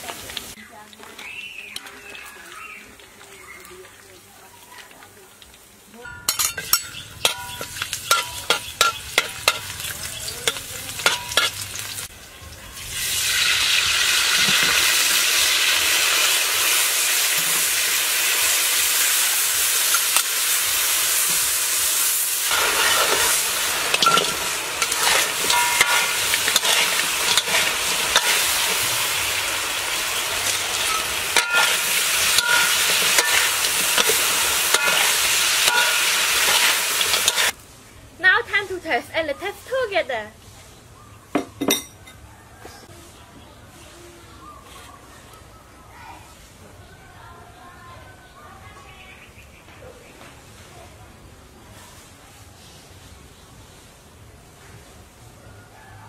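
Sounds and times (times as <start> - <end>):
chicken sizzling in a pan: 0.0 - 37.6.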